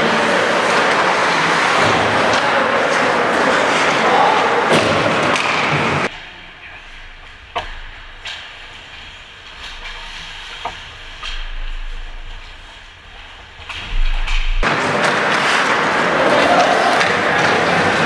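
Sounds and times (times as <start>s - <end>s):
loud rushing noise: 13.8s - 18.0s.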